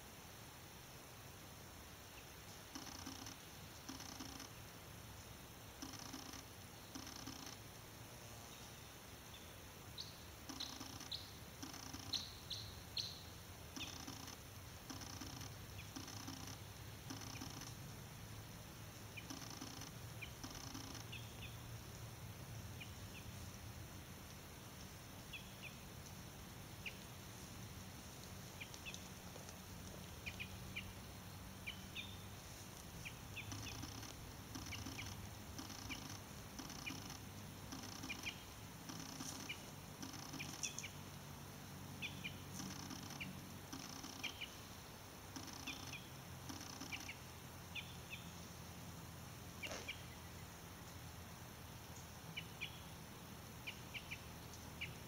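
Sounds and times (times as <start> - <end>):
high bird chirps: 10.5 - 13.2, 13.8 - 17.7, 33.1 - 41.0, 45.4 - 47.2.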